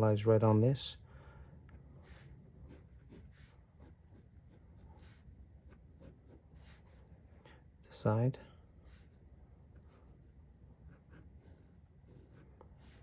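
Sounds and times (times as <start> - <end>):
pencil scratching on paper: 2.0 - 7.1, 8.7 - 13.0.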